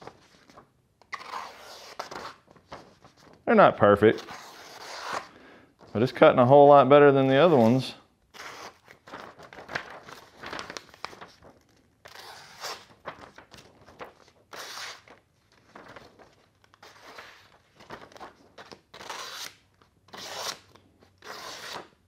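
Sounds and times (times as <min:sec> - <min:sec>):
knife slicing paper: 0:01.2 - 0:02.4, 0:04.2 - 0:05.3, 0:08.4 - 0:11.0, 0:12.1 - 0:13.2, 0:14.5 - 0:15.1, 0:18.9 - 0:21.9.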